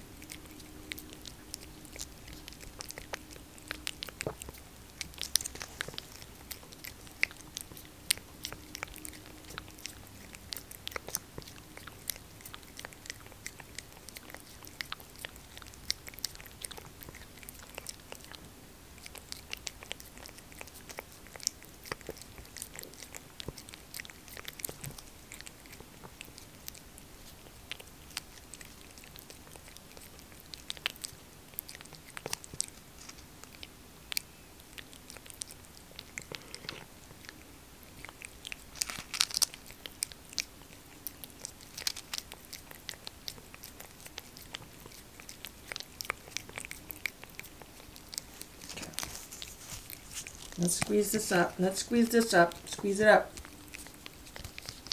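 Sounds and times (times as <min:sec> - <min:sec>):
cat licking wet clicks: 0:00.1 - 0:33.7.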